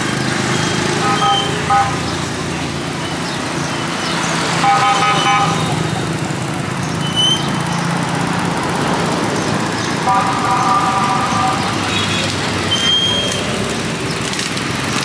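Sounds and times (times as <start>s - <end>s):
engine hum: 0.0s - 15.0s
market bustle: 0.0s - 15.0s
vehicle horn beeping: 0.6s - 2.2s, 4.6s - 5.8s, 10.0s - 13.4s.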